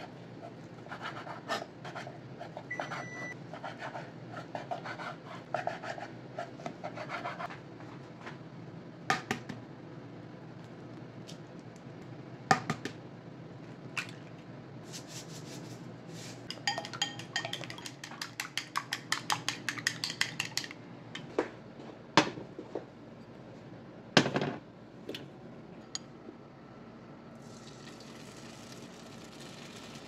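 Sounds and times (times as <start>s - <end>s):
chopsticks beating eggs in bowl: 16.5s - 20.8s.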